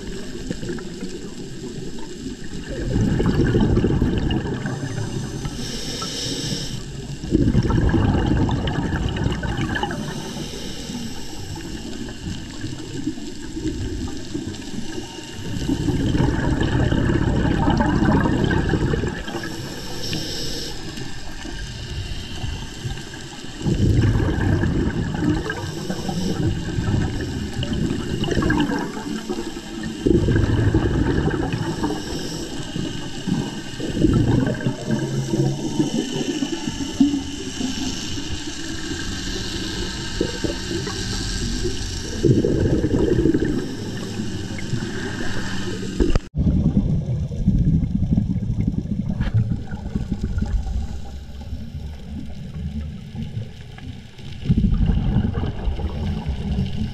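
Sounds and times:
bubbling exhales underwater: 0.0 - 56.9
scuba regulator hissing inhales: 2.6 - 46.3.

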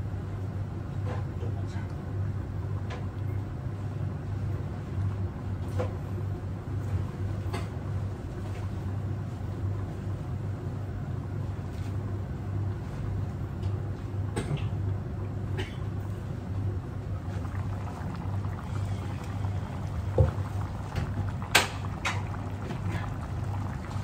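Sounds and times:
gas burner rumble: 0.0 - 24.0
ticks and pops from pot: 21.0 - 22.2.

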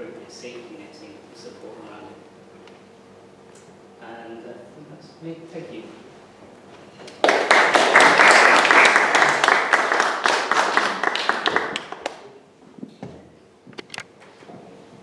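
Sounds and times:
audience applauding: 7.1 - 12.3.

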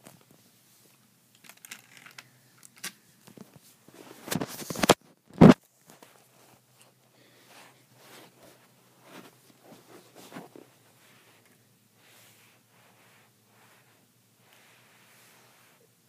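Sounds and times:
handling rustling and scraping: 3.3 - 15.9.

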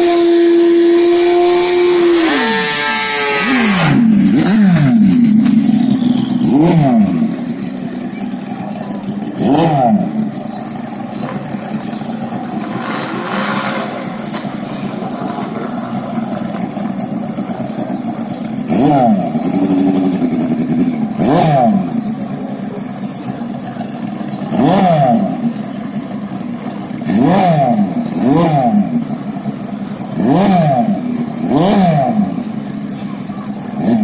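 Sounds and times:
engines idling and revving: 0.0 - 34.0.

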